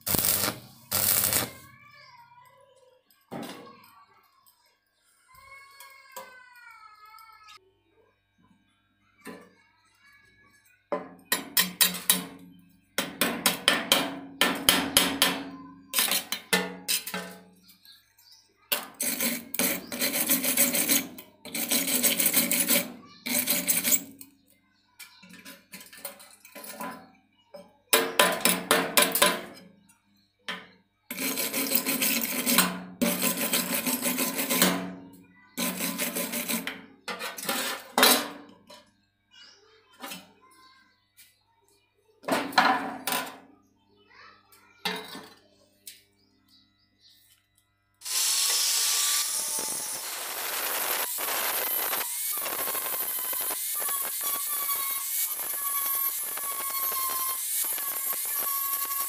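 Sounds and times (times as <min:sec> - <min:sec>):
hand file scraping steel: 0:19.0 - 0:24.1, 0:31.1 - 0:34.8, 0:35.6 - 0:36.8, 0:48.0 - 0:59.0.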